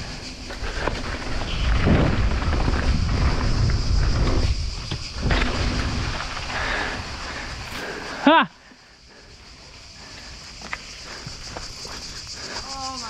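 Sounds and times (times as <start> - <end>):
wind buffeting microphone: 0.0 - 8.2
tyre noise on dirt: 0.0 - 8.6
bike clicking: 0.0 - 12.6.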